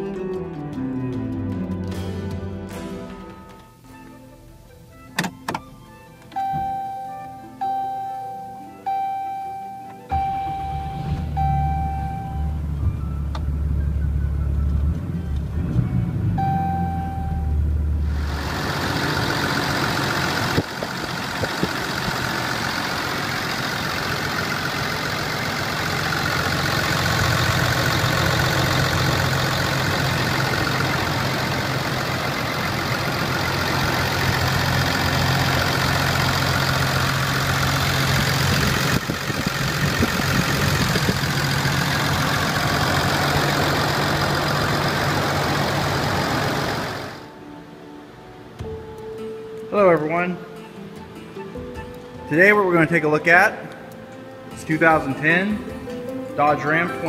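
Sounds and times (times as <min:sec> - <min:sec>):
diesel engine idling: 0:10.1 - 0:47.3.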